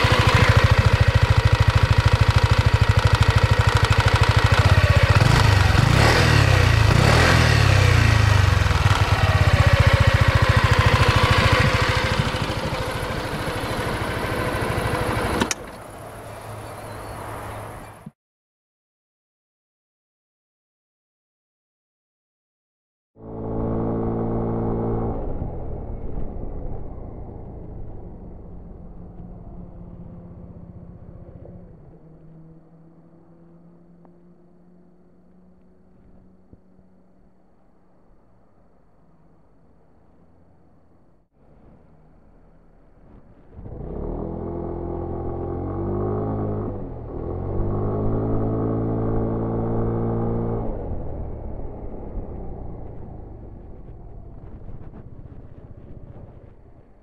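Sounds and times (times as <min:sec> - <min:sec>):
rushing wind: 0:00.0 - 0:18.0, 0:41.4 - 0:57.0
scooter engine: 0:00.0 - 0:18.1, 0:42.0 - 0:56.8
road noise: 0:00.0 - 0:18.2, 0:23.2 - 0:57.0.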